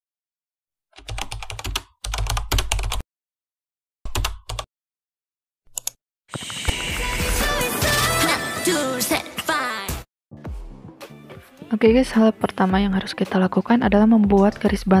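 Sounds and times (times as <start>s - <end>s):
keyboard typing: 1.0s - 3.0s, 4.1s - 4.7s
music: 6.7s - 15.0s.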